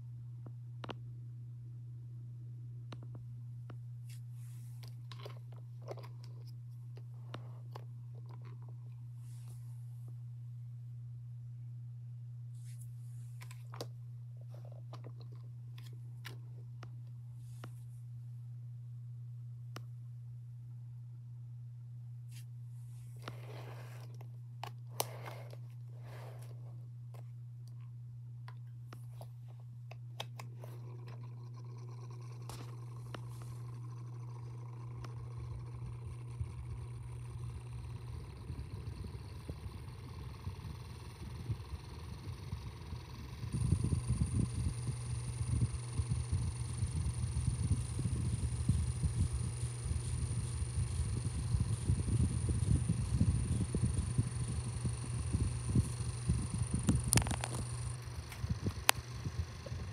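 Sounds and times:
table fan motor hum: 4.1s - 10.2s, 22.3s - 27.8s, 28.5s - 59.9s
rustling scrapes on plastic base: 22.3s - 24.3s, 24.9s - 26.7s
clicks and crackles: 56.8s - 59.0s.

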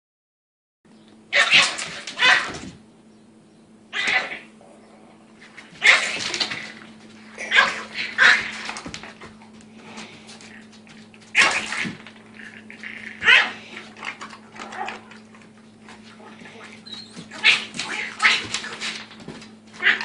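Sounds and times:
dog barking and yipping: 1.3s - 2.6s, 5.8s - 6.3s, 7.5s - 8.6s, 13.2s - 13.6s.

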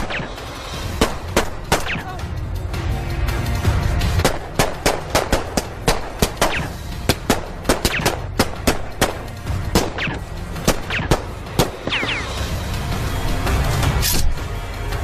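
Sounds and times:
gunshots: 0.0s - 2.2s, 4.2s - 12.5s.

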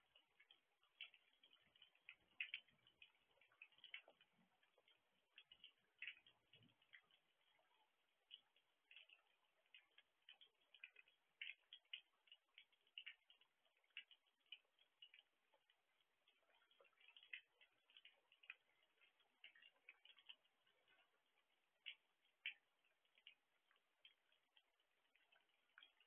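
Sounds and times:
raindrops ticking on camera: 0.0s - 26.0s.

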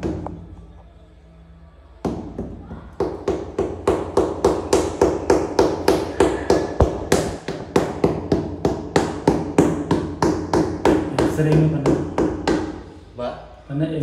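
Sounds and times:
hammering: 2.0s - 12.9s.

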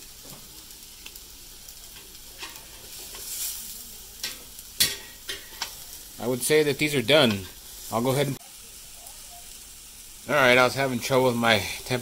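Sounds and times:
meat sizzling on grill: 0.0s - 12.0s
tongs clicking against grill: 1.0s - 3.6s, 4.2s - 5.9s.

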